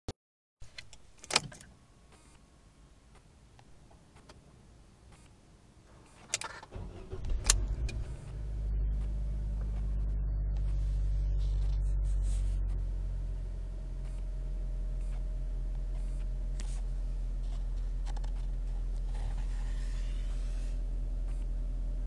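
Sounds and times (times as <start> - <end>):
car engine cranking: 6.2 - 13.1
ignition click: 6.3 - 10.8
car engine fast cold idle: 6.7 - 9.2.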